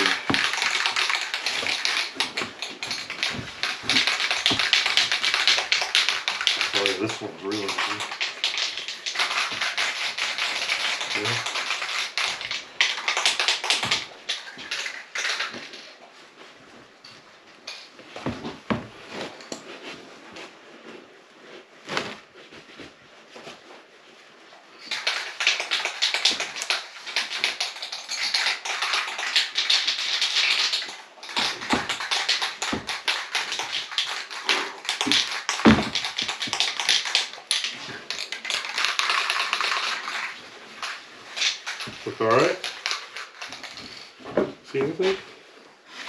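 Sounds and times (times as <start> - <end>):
paper towel rubbing on plastic: 0.0 - 8.2.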